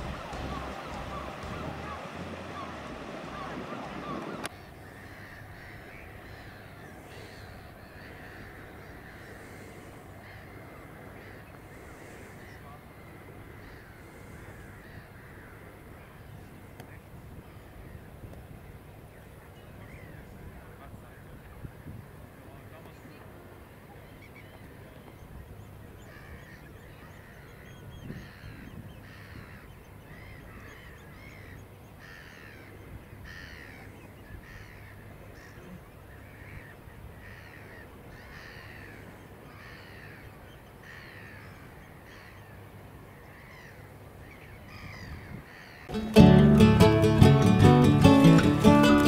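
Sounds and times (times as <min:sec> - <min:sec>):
gulls calling: 0:00.0 - 0:16.2, 0:23.9 - 0:49.0
guitar music: 0:45.9 - 0:49.0.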